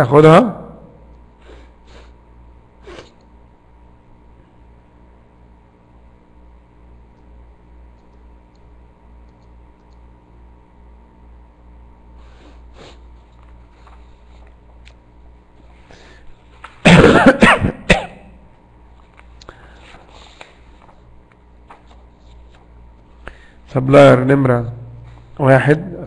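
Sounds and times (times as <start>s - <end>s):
faint electrical hum: 0.0s - 26.0s
person coughing: 16.8s - 18.4s.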